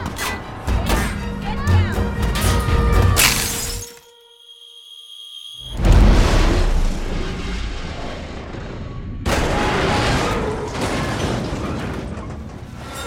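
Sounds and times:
deep rumbling crash: 0:05.8 - 0:12.8.

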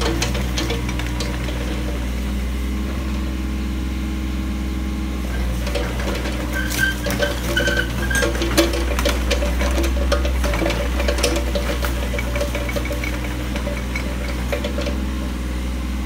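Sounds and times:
excavator diesel engine running: 0:00.0 - 0:16.0
short squeaks and clicks: 0:05.6 - 0:09.5.

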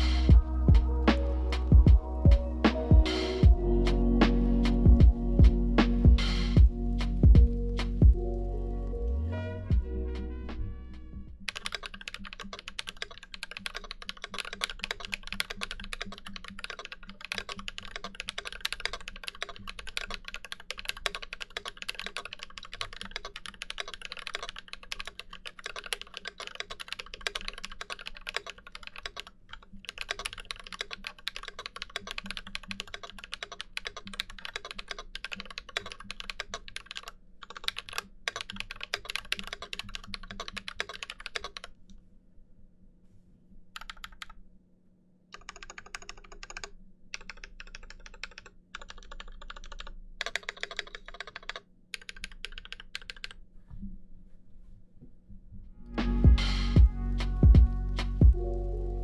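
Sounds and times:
mechanical keyboard typing: 0:11.4 - 0:41.7, 0:43.8 - 0:44.4, 0:45.3 - 0:53.4.

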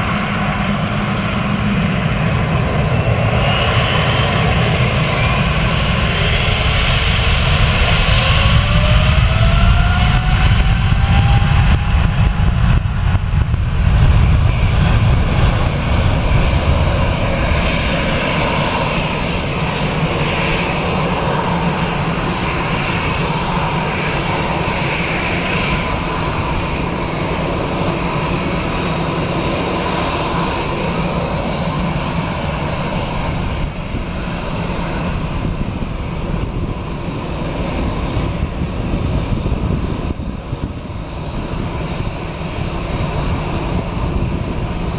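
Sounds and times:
jet engines deep rumble: 0:00.0 - 0:44.9
jet engines idling whine: 0:00.0 - 0:44.9.

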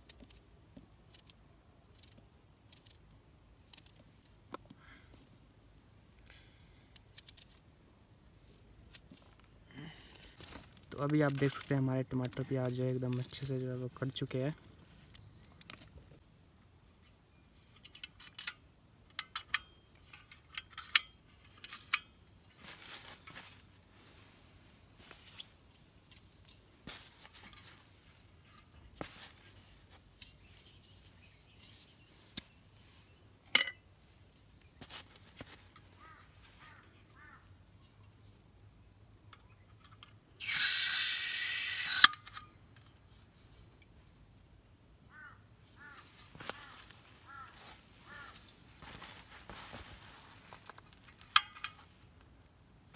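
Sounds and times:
metal clicks and clinks: 0:17.8 - 0:22.1
gas hiss: 0:40.4 - 0:42.1.

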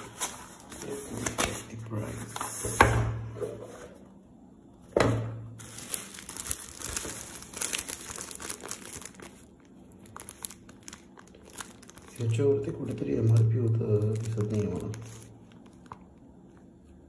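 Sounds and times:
plastic bag crinkling: 0:05.6 - 0:16.7.

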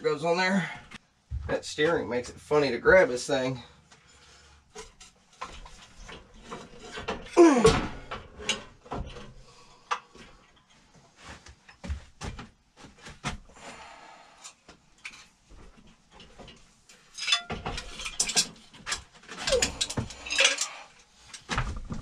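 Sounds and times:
metal clanking: 0:16.2 - 0:21.5.

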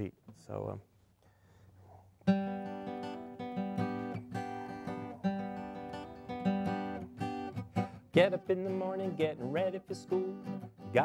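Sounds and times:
acoustic guitar strumming: 0:02.2 - 0:11.0.

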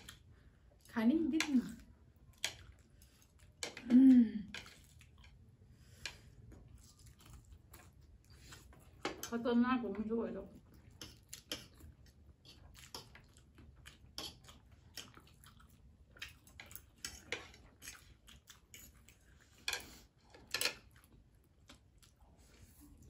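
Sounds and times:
people chewing: 0:00.0 - 0:09.4, 0:10.5 - 0:23.0
fork and chopsticks clicking on plates: 0:02.3 - 0:02.8, 0:03.5 - 0:03.9, 0:10.9 - 0:11.8, 0:14.1 - 0:15.2, 0:16.2 - 0:21.0.

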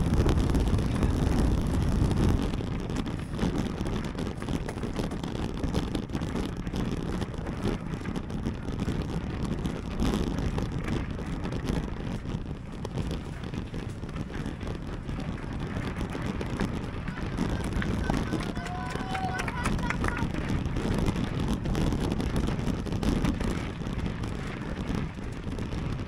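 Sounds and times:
bike rattles and clicks: 0:00.0 - 0:26.0
tyre rumble: 0:00.0 - 0:26.0
wind rushing over microphone: 0:00.0 - 0:26.0.

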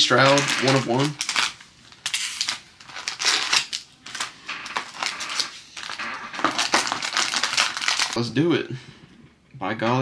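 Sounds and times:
foil wrappers crinkling: 0:00.0 - 0:08.4.

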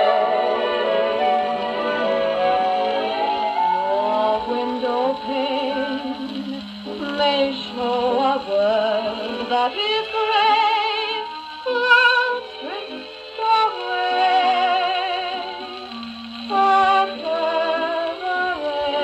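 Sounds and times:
gramophone record music: 0:00.0 - 0:19.0.

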